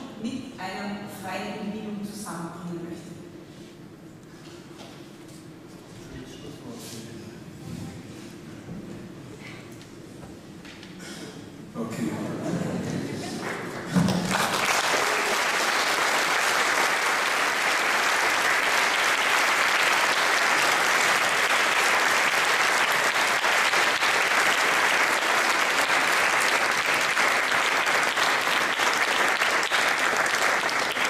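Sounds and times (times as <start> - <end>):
audience applauding: 13.4 - 31.0.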